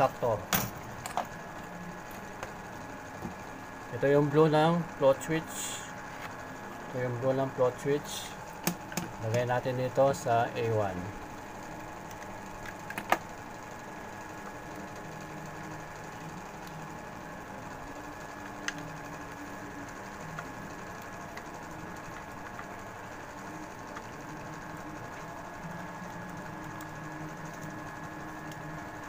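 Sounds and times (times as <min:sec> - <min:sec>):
machine hum: 0:00.0 - 0:29.0
clicks and taps of wires: 0:08.6 - 0:09.5.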